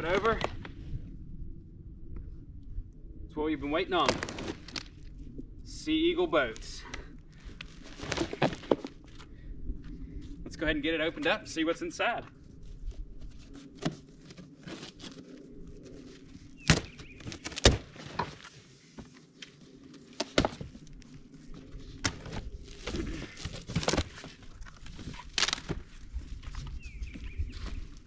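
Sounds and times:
cardboard rustling and scraping: 7.6 - 9.0, 12.7 - 28.0.

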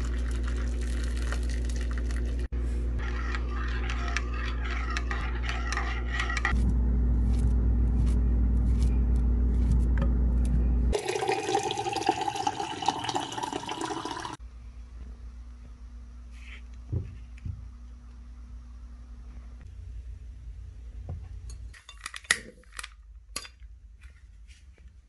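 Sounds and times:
low steady hum: 0.0 - 25.0
water poured into ceramic mug: 10.9 - 14.4
water running into glass: 11.0 - 14.4.

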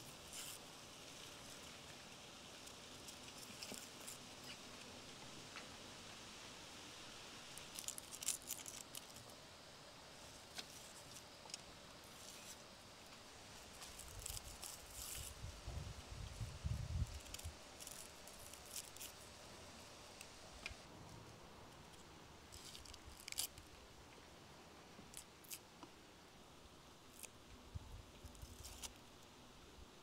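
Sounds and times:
knife peeling onion skin: 7.6 - 9.2, 13.6 - 15.4, 16.8 - 19.2, 22.5 - 23.7, 25.1 - 25.6, 28.2 - 29.0.

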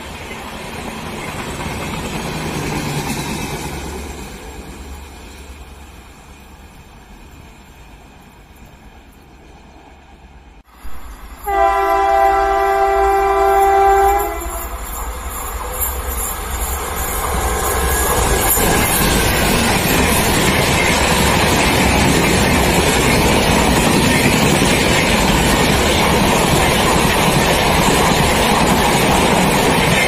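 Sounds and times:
train wheels clattering on rails: 0.0 - 9.5, 12.8 - 30.0
locomotive horn blast: 11.4 - 14.7.

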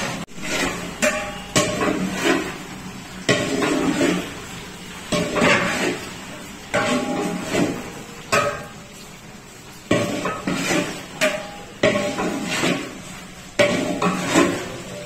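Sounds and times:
metal ladle clanging against pot: 0.4 - 2.6, 5.1 - 6.1, 6.7 - 8.8, 9.9 - 15.0.

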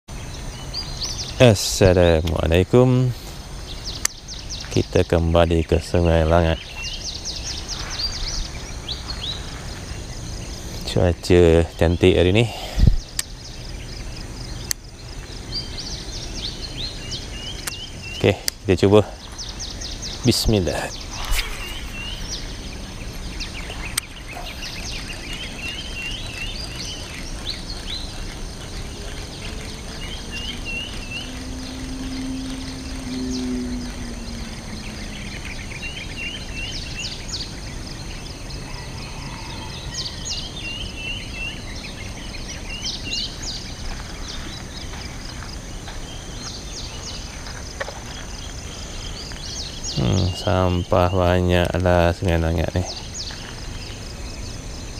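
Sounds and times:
birds chirping: 0.1 - 54.9
steady low hiss: 0.1 - 54.9
faint low hum: 0.2 - 54.9.

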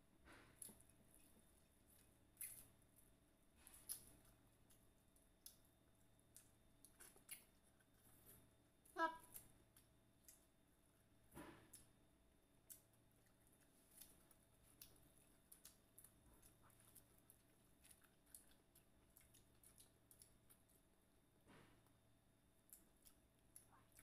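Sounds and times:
chewing crispy fried chicken: 0.3 - 24.0
small clicks and crackles: 12.6 - 20.9.

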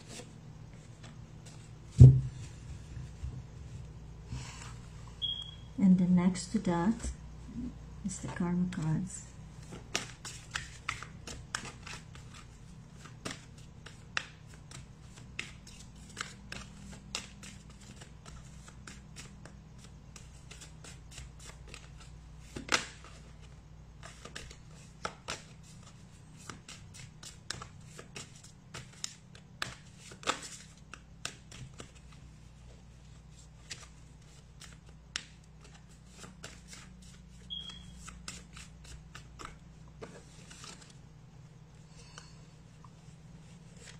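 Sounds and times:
cards being shuffled: 9.6 - 32.2, 33.0 - 41.0, 43.4 - 43.9.

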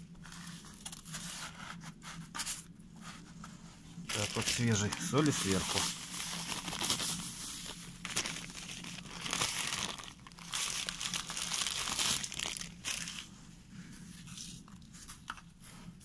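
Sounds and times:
plastic bag crinkling: 4.1 - 13.3.

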